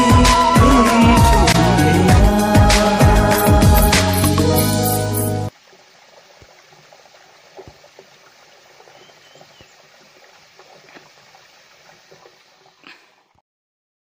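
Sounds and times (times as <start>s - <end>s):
small waterfall trickling: 3.4s - 13.4s
water drips and splashes: 3.4s - 13.4s.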